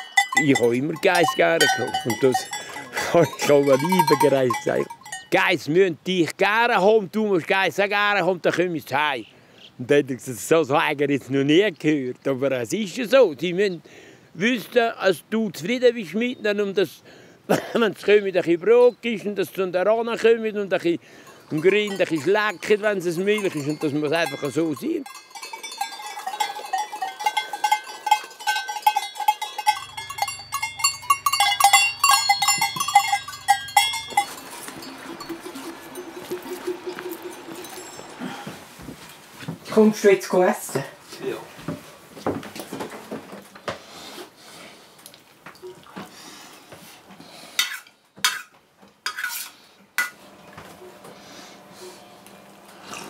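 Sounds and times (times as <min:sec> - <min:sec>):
goat bells clanking: 0:00.0 - 0:05.7, 0:21.2 - 0:38.6
metal spoon scraping a metal bowl: 0:25.0 - 0:38.1, 0:49.1 - 0:50.2.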